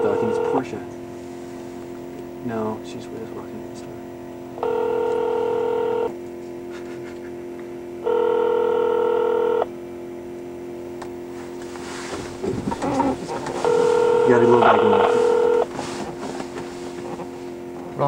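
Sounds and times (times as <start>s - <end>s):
telephone ringing tone: 0.0s - 0.6s, 4.6s - 6.2s, 8.0s - 9.7s, 13.6s - 15.7s.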